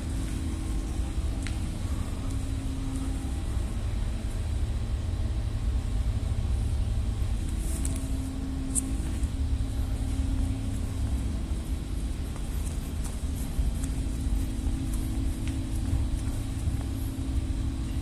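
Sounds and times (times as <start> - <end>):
faint hum: 0.0 - 18.0
low rumble: 0.0 - 18.0
light ticks: 1.4 - 1.6.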